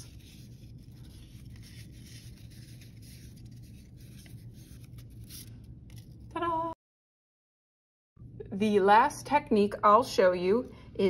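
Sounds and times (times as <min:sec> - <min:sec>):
paper strip rustling: 0:00.0 - 0:06.3
steady low hum: 0:00.0 - 0:06.8.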